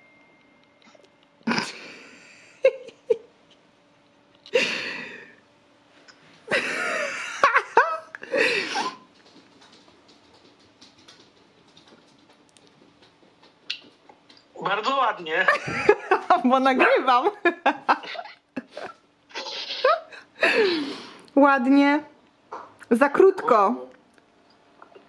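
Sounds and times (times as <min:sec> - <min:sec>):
people laughing over phone call: 0:15.4 - 0:18.9.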